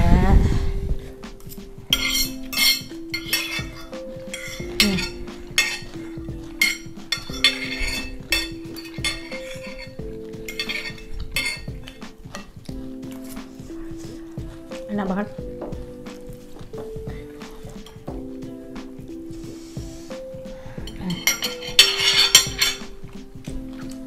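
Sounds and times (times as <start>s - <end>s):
soft background music: 0.0s - 24.0s
cutlery clinking on a plate: 1.4s - 12.5s, 20.9s - 23.1s.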